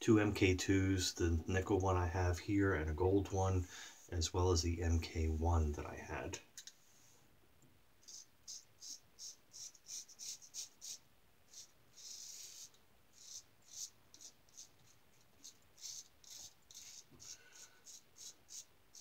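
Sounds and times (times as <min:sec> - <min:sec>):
razor scraping beard stubble: 0:08.0 - 0:19.0.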